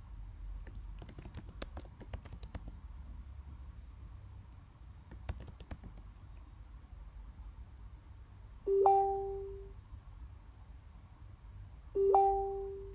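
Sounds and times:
low steady hum: 0.0 - 12.9
computer keyboard typing: 0.6 - 2.8, 5.1 - 6.2.

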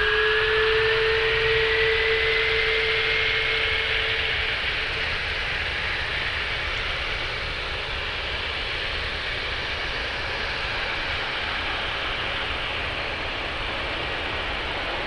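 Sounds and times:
jet engines rushing and whining: 0.0 - 15.0
low hum: 0.0 - 15.0.

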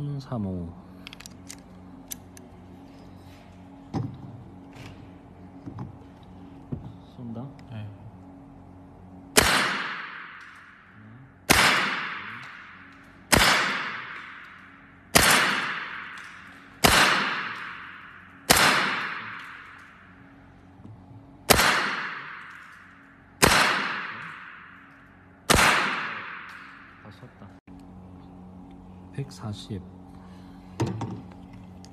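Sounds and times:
air rifle shots echoing: 9.4 - 10.9, 11.5 - 20.1, 21.4 - 24.9, 25.5 - 27.0.

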